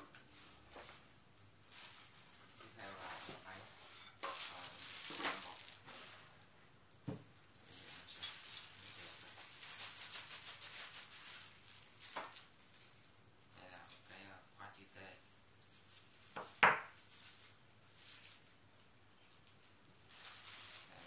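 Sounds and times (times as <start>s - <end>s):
plastic bag crinkling: 1.6s - 3.6s, 4.2s - 6.3s, 7.4s - 13.2s, 15.0s - 21.0s.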